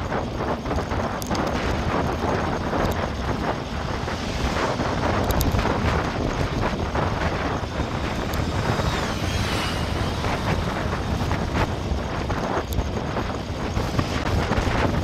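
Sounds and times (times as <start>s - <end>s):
bicycle rattling on road: 0.0s - 15.0s
wind buffeting microphone: 0.0s - 15.0s.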